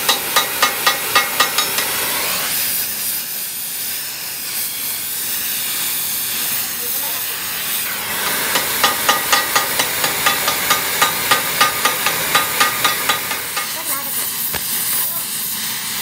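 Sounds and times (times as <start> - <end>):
hammer striking hot metal: 0.0 - 2.4, 8.1 - 14.9
torch flame hissing: 0.0 - 16.0.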